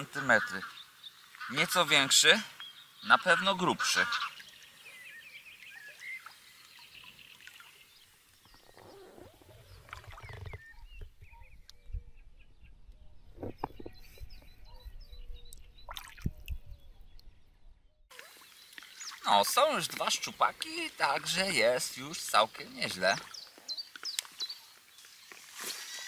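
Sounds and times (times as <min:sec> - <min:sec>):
birdsong: 0:00.0 - 0:26.0
water splashing and dripping: 0:06.2 - 0:08.8, 0:15.5 - 0:16.6, 0:18.1 - 0:20.3.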